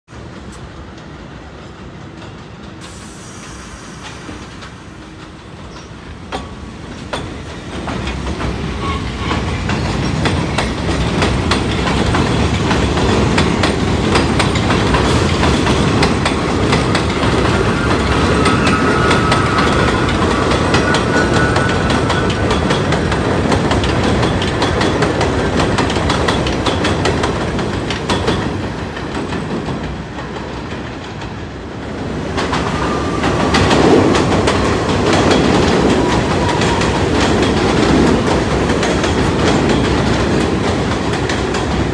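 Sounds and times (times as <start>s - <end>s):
train rumbling on steel track: 0.1s - 41.9s
train wheel squeal: 2.8s - 6.5s, 7.1s - 10.8s, 14.5s - 25.0s, 32.5s - 38.0s.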